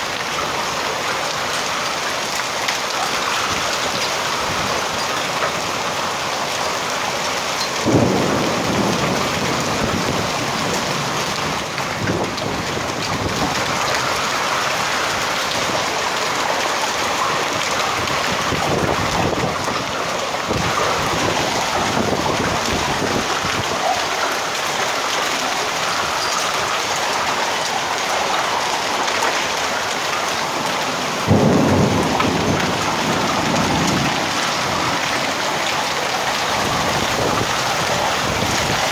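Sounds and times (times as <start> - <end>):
heavy rain pouring: 0.0 - 38.9
thunder rumbles: 7.6 - 23.8, 29.5 - 38.9.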